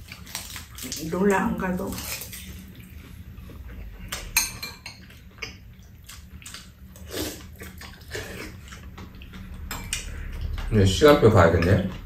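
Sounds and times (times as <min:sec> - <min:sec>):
utensils clinking against bowls: 0:04.2 - 0:05.6, 0:09.6 - 0:12.0.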